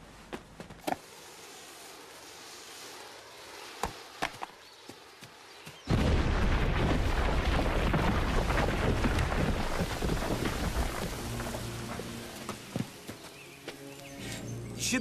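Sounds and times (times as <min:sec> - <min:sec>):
explosive blast with rumbling roll: 0:05.9 - 0:12.2.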